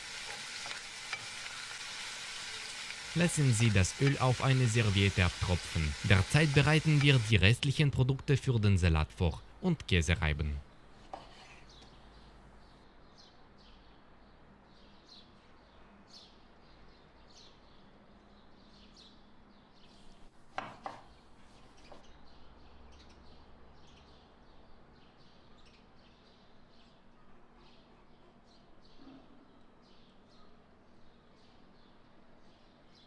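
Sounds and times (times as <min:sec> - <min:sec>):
knife cutting on wooden board: 0:11.0 - 0:11.7.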